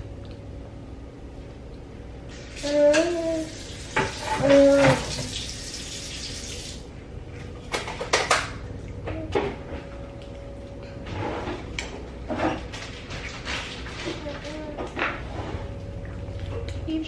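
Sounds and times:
water running from tap: 0:02.3 - 0:06.9
toddler vocal sound: 0:02.6 - 0:03.6, 0:04.3 - 0:05.1.

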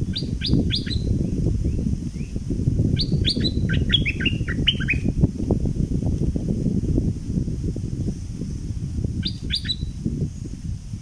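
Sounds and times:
bird singing falling whistled notes: 0:00.0 - 0:02.4, 0:03.0 - 0:05.2, 0:09.2 - 0:10.0.

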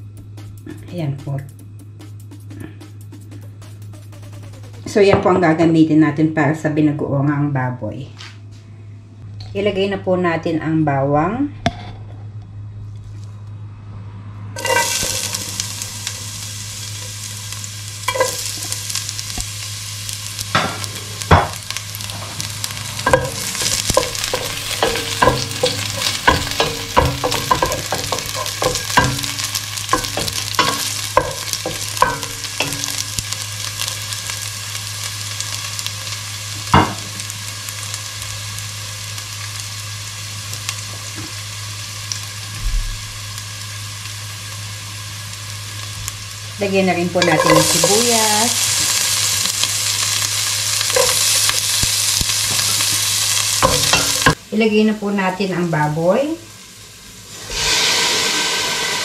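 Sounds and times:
steady low hum: 0:00.0 - 0:40.8
garlic sizzling in hot oil: 0:14.6 - 0:59.0
wooden spoon knocking on pot: 0:23.1 - 0:29.4.

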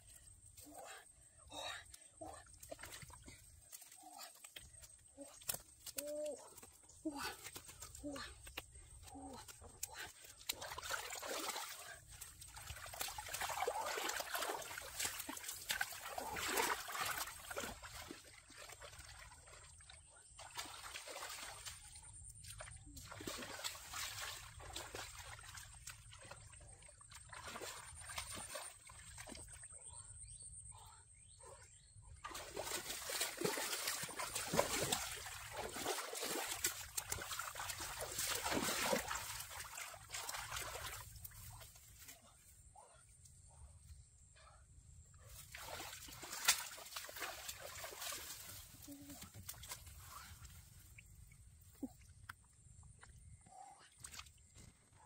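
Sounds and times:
muddy water splashing: 0:00.0 - 0:30.1, 0:30.7 - 0:43.0, 0:45.2 - 0:55.0.

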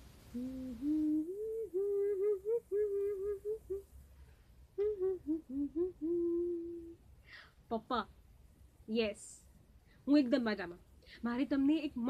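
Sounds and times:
woman humming a tune: 0:00.3 - 0:03.8, 0:04.8 - 0:07.0.

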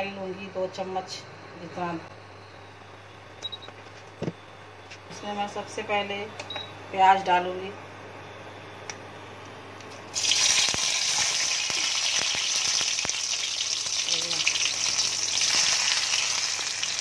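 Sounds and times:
onion sizzling in hot oil: 0:10.1 - 0:17.0.

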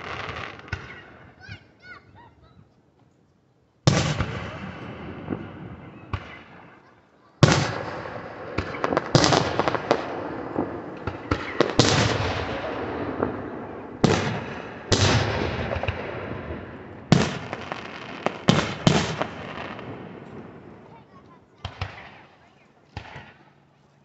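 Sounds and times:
fireworks crackling and popping: 0:00.0 - 0:01.0, 0:03.9 - 0:06.6, 0:07.4 - 0:23.4
firework shells booming: 0:03.9 - 0:06.8, 0:07.4 - 0:20.9.

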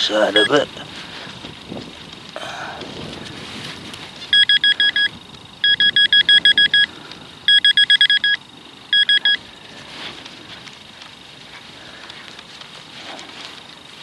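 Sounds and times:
metal detector pinpointer beeping: 0:00.3 - 0:00.6, 0:04.3 - 0:09.4.

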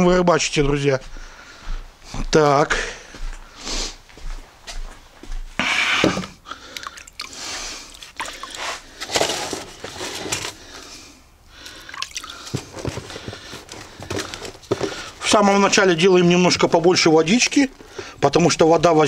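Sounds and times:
hands squishing wet feed: 0:06.6 - 0:09.0, 0:11.6 - 0:12.7
water poured from a bucket: 0:06.8 - 0:09.5, 0:11.6 - 0:12.6.

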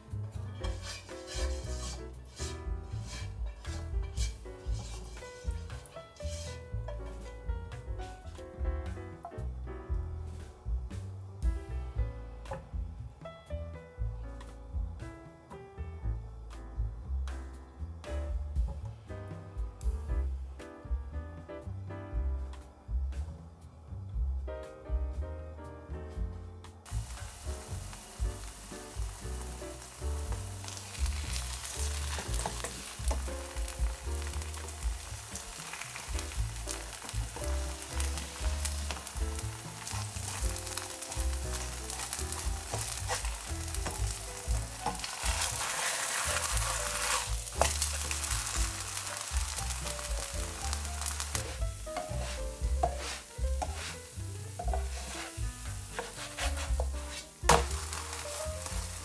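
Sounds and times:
spatula scraping a pan: 0:00.5 - 0:07.3, 0:28.5 - 0:59.0
pancake sizzling in oil: 0:00.6 - 0:07.3, 0:26.9 - 0:59.0.

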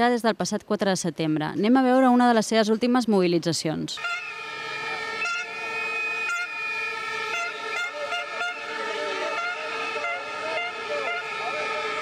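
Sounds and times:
faint crowd noise: 0:01.6 - 0:12.0
whistles and horns blowing: 0:04.0 - 0:12.0.

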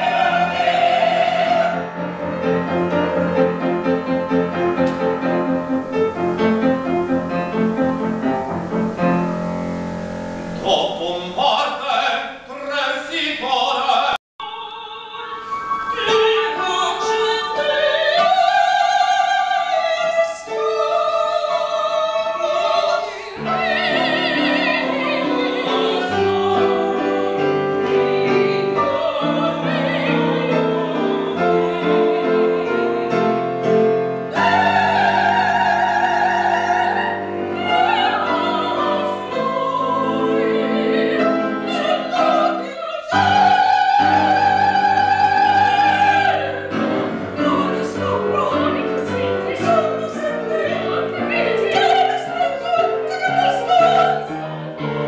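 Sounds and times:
women singing operatically: 0:00.0 - 0:02.6, 0:14.4 - 0:54.6
piano accompaniment: 0:00.0 - 0:12.5, 0:15.1 - 0:55.0.

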